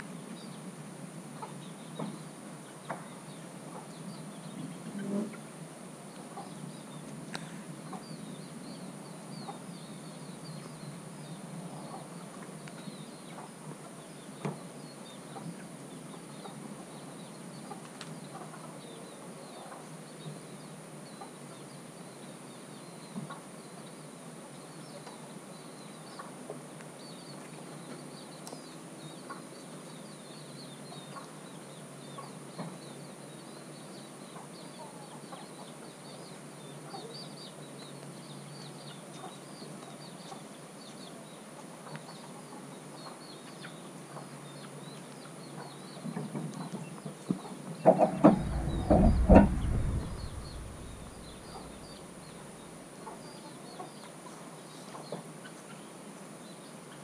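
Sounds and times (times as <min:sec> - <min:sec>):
chickens clucking: 0:47.4 - 0:50.2.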